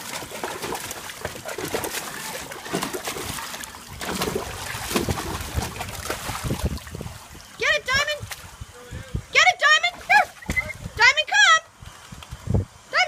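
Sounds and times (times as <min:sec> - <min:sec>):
dog splashing in water: 0:00.0 - 0:07.5.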